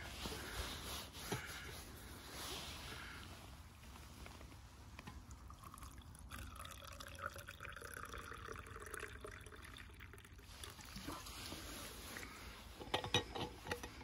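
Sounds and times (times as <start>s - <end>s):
liquid pouring into a vessel: 5.3s - 14.0s.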